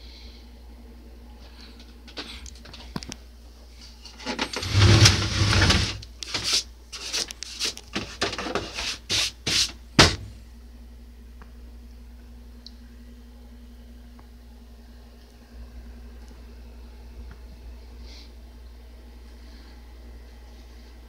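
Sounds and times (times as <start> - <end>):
hand rubbing on plastic: 4.5 - 9.8.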